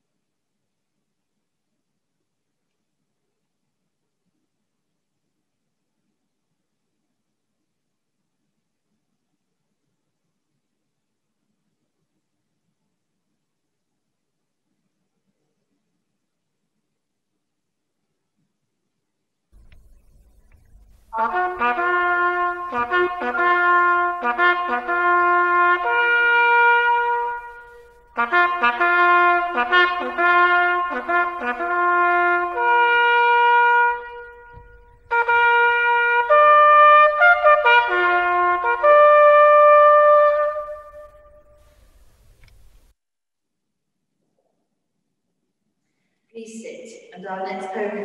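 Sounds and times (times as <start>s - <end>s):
solo cornet melody: 19.8s - 42.1s.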